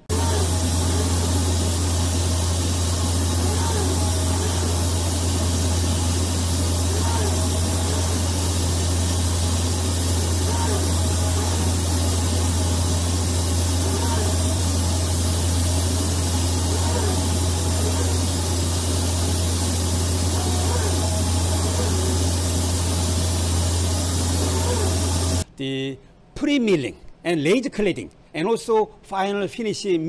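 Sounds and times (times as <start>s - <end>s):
laser cladding machine hum and hiss: 0.0s - 25.5s.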